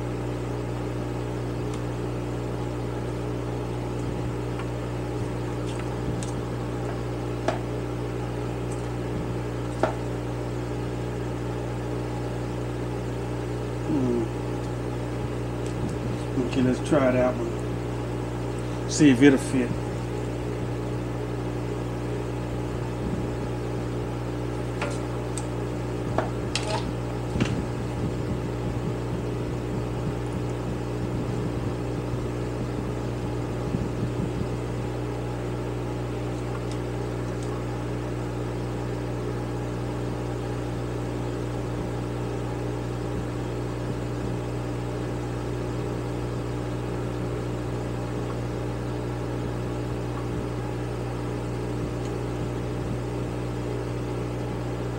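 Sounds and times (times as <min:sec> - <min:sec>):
steady machine hum: 0:00.0 - 0:54.9.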